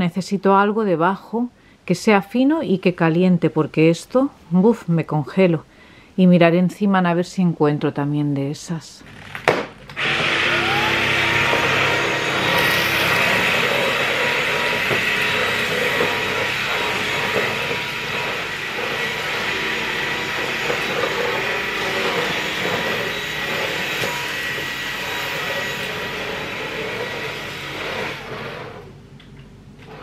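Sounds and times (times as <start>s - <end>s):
vacuum cleaner motor whine: 10.0s - 29.0s.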